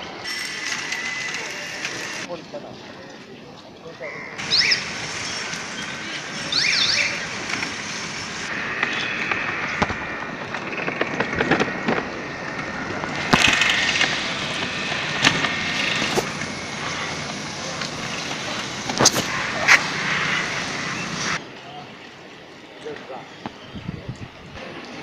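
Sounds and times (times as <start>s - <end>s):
bicycles rattling and clicking: 0.0s - 2.7s, 4.4s - 21.4s
steady outdoor hiss: 0.0s - 25.0s.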